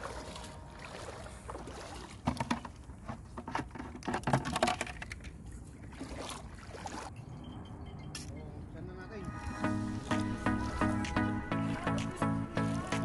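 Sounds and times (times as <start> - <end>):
shallow water splashing: 0.0 - 3.0, 5.7 - 7.1.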